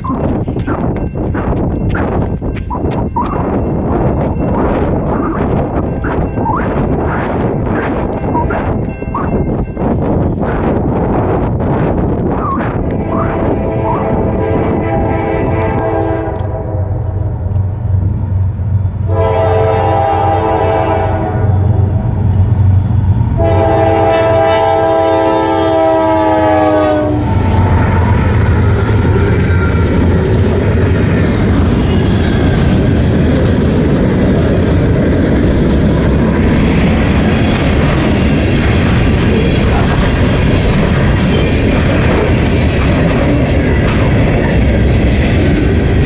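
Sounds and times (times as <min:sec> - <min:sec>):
wheels clacking: 0:00.0 - 0:11.3
train rumbling over rails: 0:00.0 - 0:46.0
train horn blasts: 0:12.9 - 0:17.1, 0:19.1 - 0:21.9, 0:23.3 - 0:27.8.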